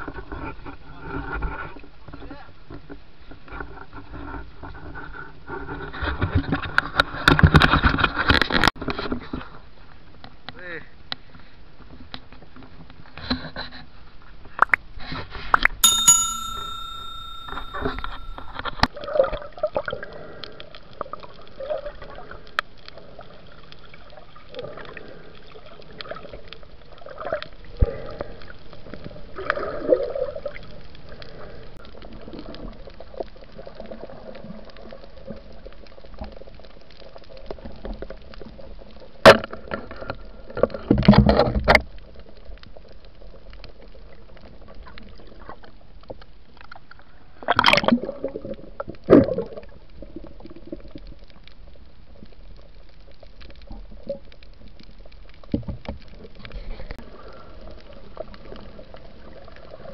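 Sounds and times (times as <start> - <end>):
short ringing tone: 15.8 - 18.5
underwater gurgling and bubbling: 19.4 - 36.7, 47.0 - 51.8.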